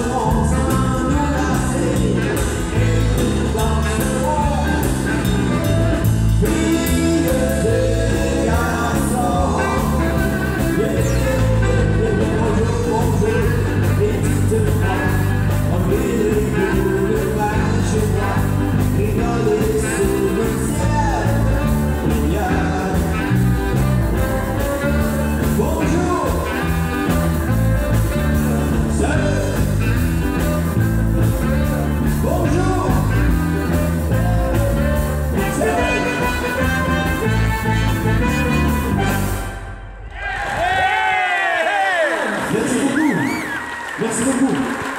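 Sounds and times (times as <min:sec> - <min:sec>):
man singing into microphone: 0:00.0 - 0:05.3, 0:06.3 - 0:23.8, 0:25.0 - 0:27.3, 0:27.9 - 0:30.5, 0:31.6 - 0:39.0
live band playing: 0:00.0 - 0:40.2.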